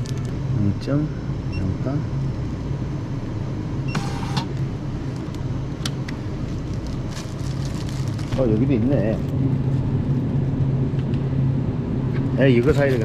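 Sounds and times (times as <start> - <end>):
steady low hum: 0.0 - 13.0
label printer buzz: 3.9 - 4.5.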